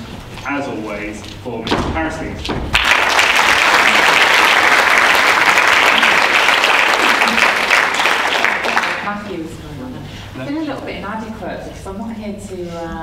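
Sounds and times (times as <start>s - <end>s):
audience applauding: 2.7s - 9.2s.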